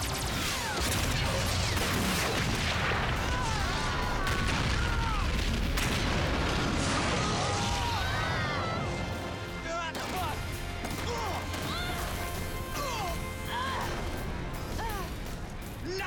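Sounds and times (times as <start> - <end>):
laser shot zaps: 0.0 - 4.8
explosions and blasts: 0.0 - 12.6.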